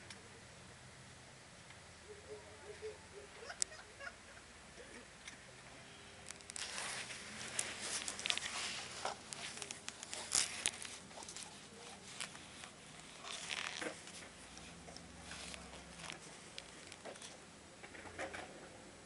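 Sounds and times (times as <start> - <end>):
camera handling rustling and clicks: 6.3 - 14.7.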